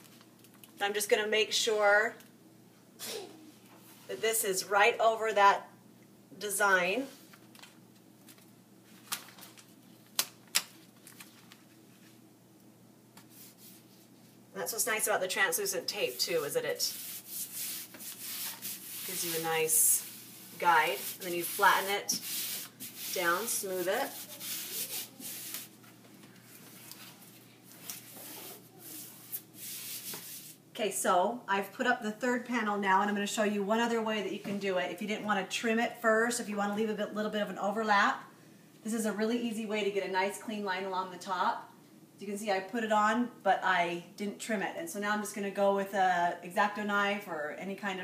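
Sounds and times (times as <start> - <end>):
hand rubbing vinyl panel: 13.2 - 14.2, 15.4 - 25.7, 26.7 - 30.6.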